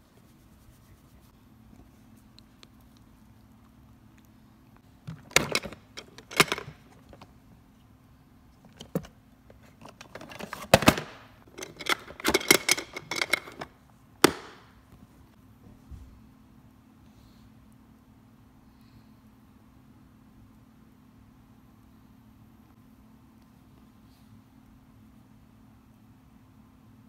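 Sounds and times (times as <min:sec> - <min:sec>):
faint low hum: 0:00.0 - 0:27.0
hard plastic objects clattering: 0:05.0 - 0:07.3, 0:08.7 - 0:14.6.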